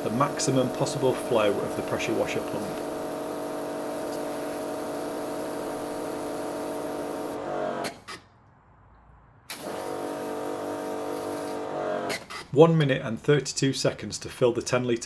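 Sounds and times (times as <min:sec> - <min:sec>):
water jetting into bucket: 0:00.0 - 0:07.4
pressure washer motor hum: 0:00.0 - 0:08.0, 0:09.5 - 0:12.3.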